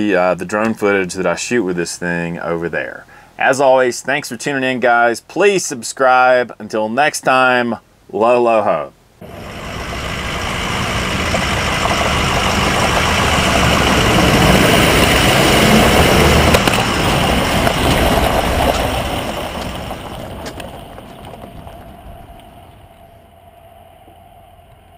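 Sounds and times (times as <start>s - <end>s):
truck driving on gravel: 9.2s - 24.9s.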